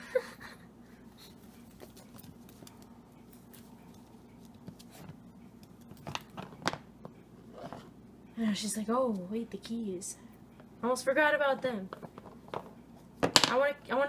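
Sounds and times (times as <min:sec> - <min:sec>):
steady low hum: 0:00.0 - 0:14.0
claws and toys tapping: 0:11.8 - 0:13.7.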